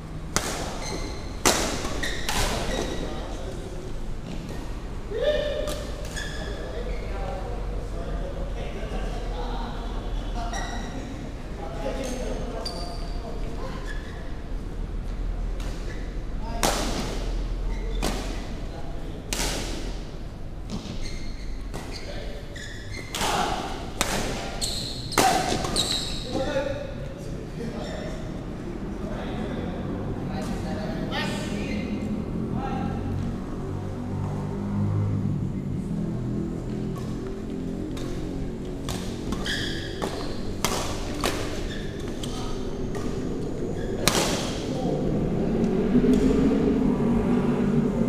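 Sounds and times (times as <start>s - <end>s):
rackets hitting shuttlecock: 0.3s - 3.0s, 5.5s - 6.2s, 16.6s - 17.4s, 19.3s - 20.0s, 23.0s - 26.0s, 36.9s - 43.2s, 44.0s - 44.6s
sneakers squeaking on court floor: 0.5s - 3.2s, 5.7s - 7.2s, 10.5s - 11.0s, 12.0s - 14.4s, 17.7s - 18.4s, 20.6s - 26.5s, 37.8s - 43.2s
badminton racket hitting shuttlecock: 38.9s - 41.6s.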